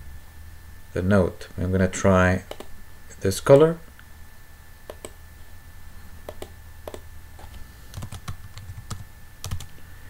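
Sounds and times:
computer keyboard typing: 6.3 - 9.7.

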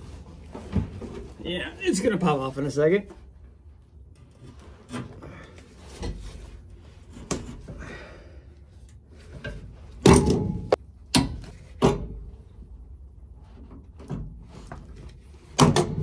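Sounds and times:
metal clanks and knocks: 9.4 - 12.4.

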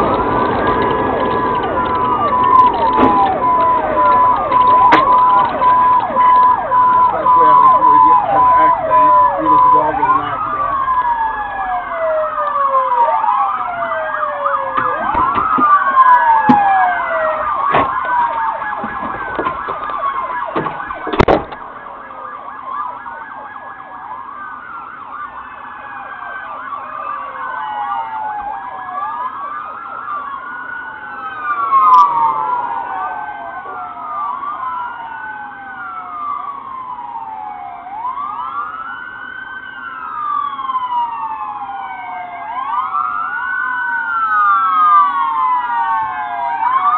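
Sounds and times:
police sirens wailing: 0.0 - 46.9.

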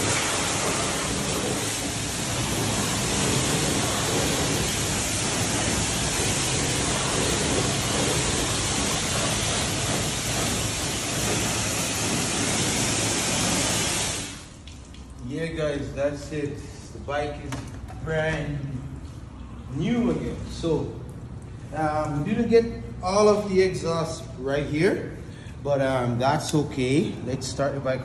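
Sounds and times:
water jet spraying: 0.0 - 15.1.

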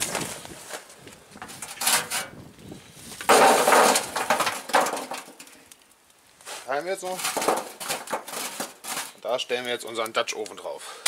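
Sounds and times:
charcoal clattering onto metal grill: 1.5 - 2.4, 3.1 - 5.7, 6.4 - 10.2.

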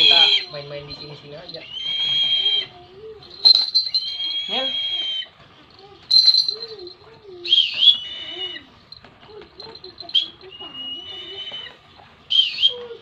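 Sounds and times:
young eagle calling: 0.0 - 2.8, 3.4 - 5.4, 7.4 - 8.7.

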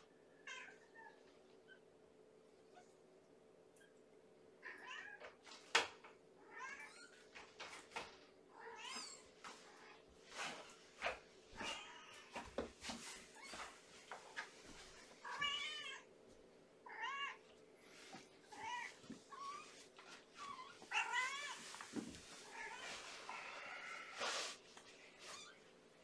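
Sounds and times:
cat meowing: 20.6 - 21.6.

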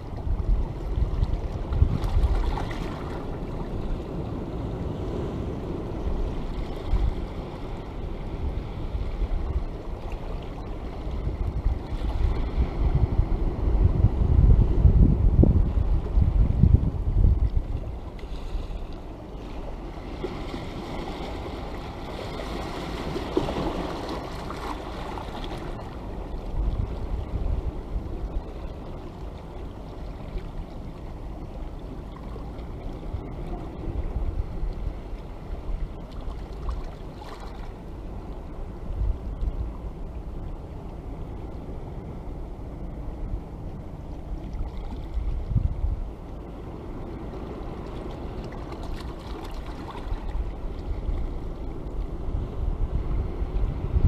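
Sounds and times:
sea washing over rocks: 0.0 - 13.9, 17.5 - 38.0, 44.3 - 52.4
wind rumbling on microphone: 0.0 - 54.0.

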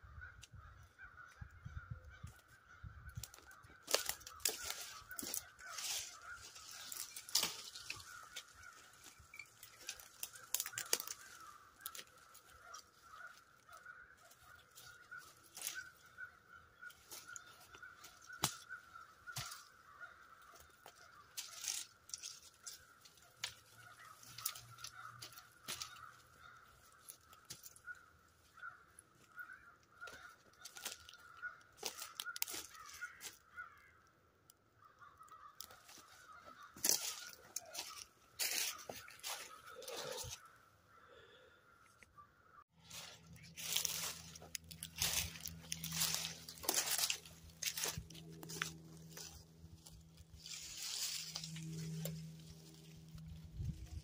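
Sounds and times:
twigs snapping: 3.2 - 33.8, 34.4 - 40.5, 42.9 - 54.0
high-pitched hum: 43.2 - 54.0.

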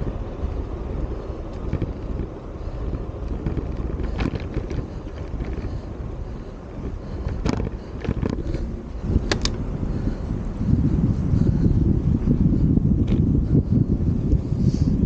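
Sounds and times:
low rumble of bicycle ride: 0.0 - 15.0
wind buffeting microphone: 0.0 - 15.0.

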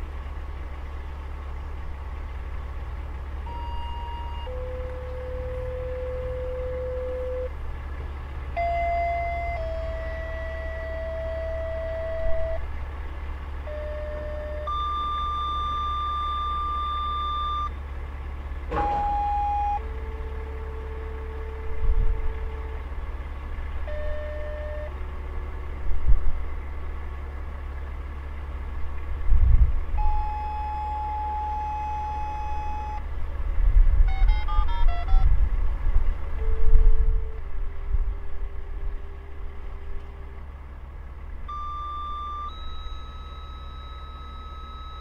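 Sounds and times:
diesel truck engine idling: 0.0 - 45.0
paging tone beeps over radio: 14.1 - 17.7, 30.1 - 33.0, 34.1 - 35.3, 41.5 - 45.0.

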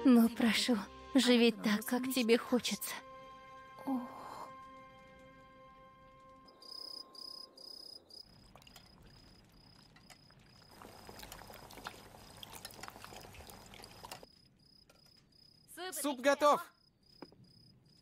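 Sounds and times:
crickets chirping: 6.4 - 18.0
soup bubbling and crackling: 7.5 - 15.3
wooden spoon stirring soup: 10.0 - 14.3.

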